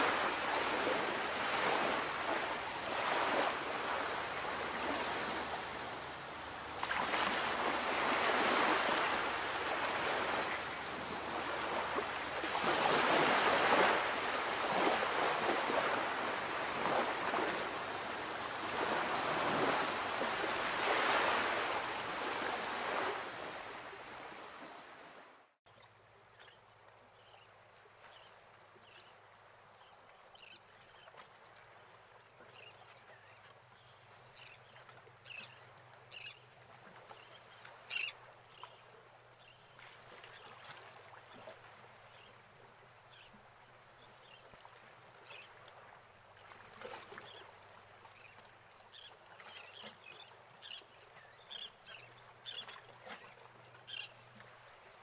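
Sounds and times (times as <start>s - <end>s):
waves washing: 0.0s - 25.4s.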